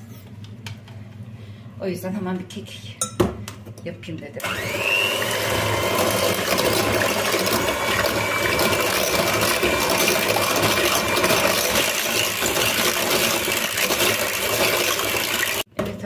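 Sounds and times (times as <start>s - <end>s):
electric hand mixer whisking: 4.4s - 15.7s.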